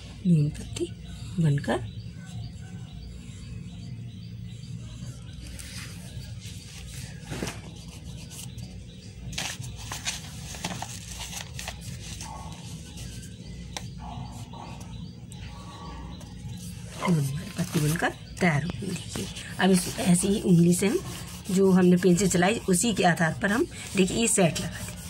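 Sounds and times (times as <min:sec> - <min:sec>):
steady low hum: 0:00.0 - 0:25.0
paper rustling and tapping: 0:09.3 - 0:12.3
pencil scratching on paper: 0:16.1 - 0:25.0.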